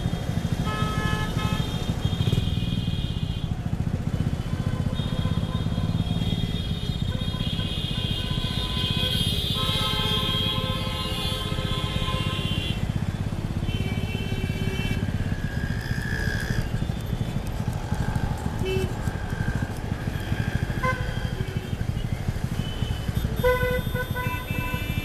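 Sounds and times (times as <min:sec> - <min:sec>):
motorcycle engine running: 0:00.0 - 0:25.0
vehicle horn honks: 0:00.6 - 0:03.2, 0:22.6 - 0:25.0.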